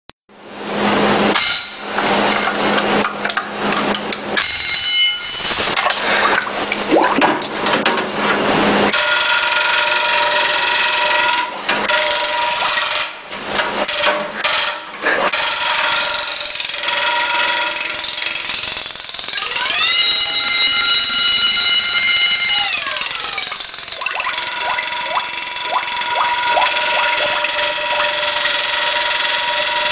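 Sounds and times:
alarm bell ringing under water: 0:04.4 - 0:05.4, 0:19.6 - 0:29.9.

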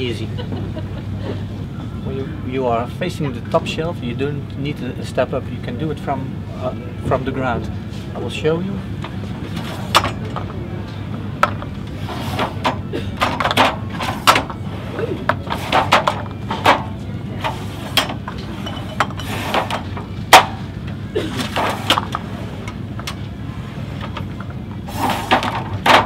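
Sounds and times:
steady low hum: 0:00.0 - 0:26.0
jars knocking and sliding on shelf: 0:11.4 - 0:26.0.

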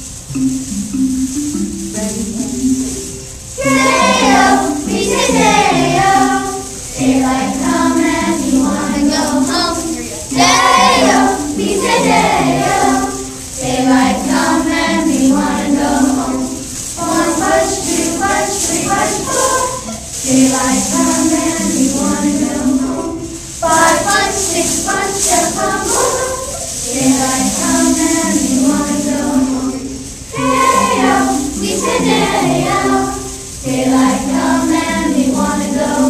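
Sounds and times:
music accompaniment: 0:00.0 - 0:36.0
children singing together: 0:03.6 - 0:36.0.

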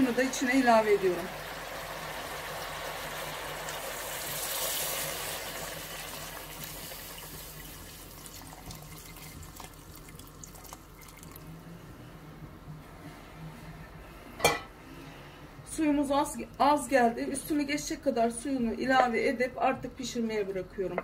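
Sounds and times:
broth pouring into metal pot: 0:01.2 - 0:11.4.

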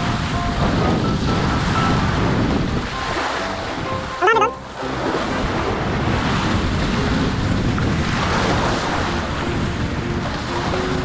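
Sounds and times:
sea waves washing ashore: 0:00.0 - 0:11.0
wind buffeting microphone: 0:00.0 - 0:11.0
short warbling sound: 0:02.9 - 0:04.7.

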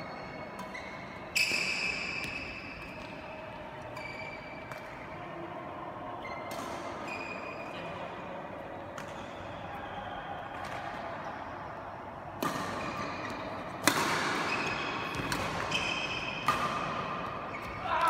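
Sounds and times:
racket hitting shuttlecock: 0:03.9 - 0:05.0, 0:06.4 - 0:07.3, 0:12.4 - 0:18.0.

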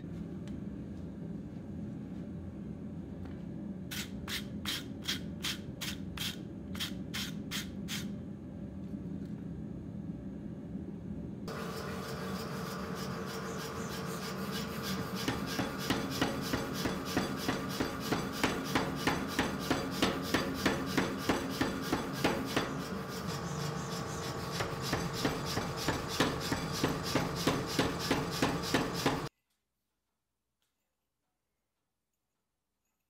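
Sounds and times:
power hammer striking metal: 0:11.5 - 0:29.3
motor humming: 0:21.8 - 0:29.3.

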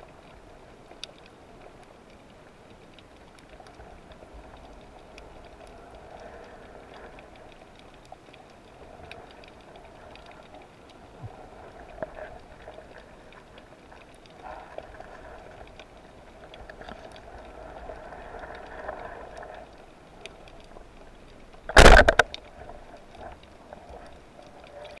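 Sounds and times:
faint underwater clicks: 0:00.0 - 0:25.0
low underwater hiss: 0:00.0 - 0:25.0
spear shaft striking fish: 0:21.7 - 0:22.3
speargun firing: 0:21.8 - 0:22.2.

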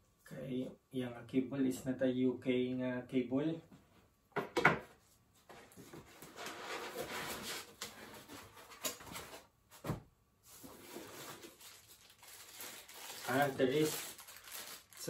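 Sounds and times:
cables and packaging rustling: 0:05.4 - 0:15.0.

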